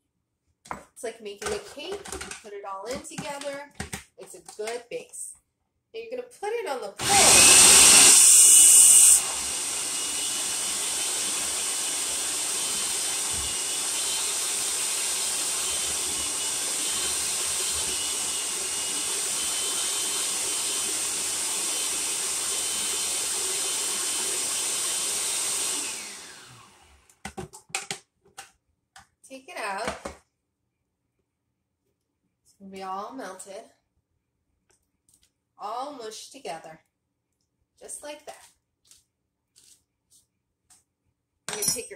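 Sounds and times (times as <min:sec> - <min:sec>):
food processor whirring: 0:07.0 - 0:27.4.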